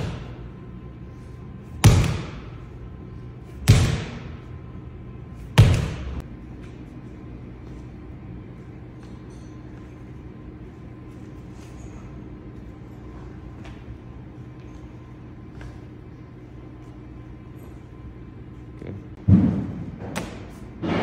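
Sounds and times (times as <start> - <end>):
slam ball thudding on concrete: 1.8 - 2.6, 3.6 - 4.3, 5.6 - 6.2.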